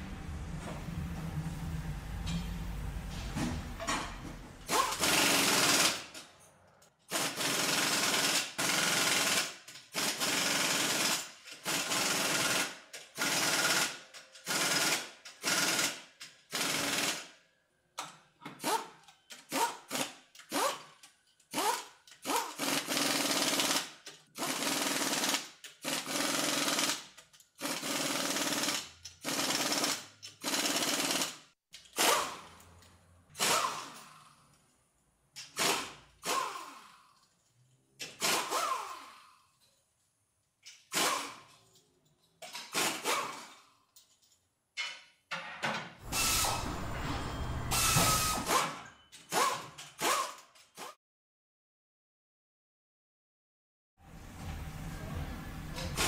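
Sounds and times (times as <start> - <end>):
pneumatic impact wrench: 4.7 - 6.2, 7.1 - 17.3, 18.4 - 32.6, 33.3 - 34.4, 35.4 - 37.2, 38.0 - 39.4, 40.7 - 41.6, 42.4 - 43.7, 46.0 - 51.0.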